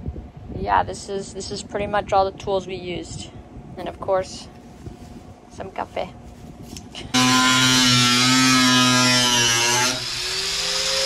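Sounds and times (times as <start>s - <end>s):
cordless drill motor whining: 7.0s - 11.0s.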